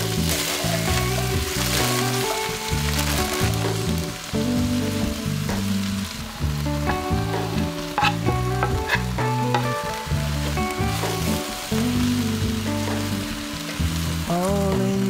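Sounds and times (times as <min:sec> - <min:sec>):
background music: 0:00.0 - 0:15.0
squash sizzling in oil: 0:05.2 - 0:14.6
wooden spoon stirring: 0:07.9 - 0:09.8
scraping on cutting board: 0:08.0 - 0:09.8.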